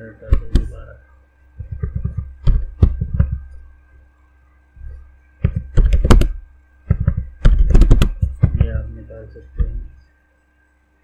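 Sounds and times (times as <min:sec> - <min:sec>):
faint electrical hum: 0:00.0 - 0:11.0
keyboard key taps: 0:00.3 - 0:00.7, 0:01.6 - 0:03.6, 0:05.4 - 0:08.8.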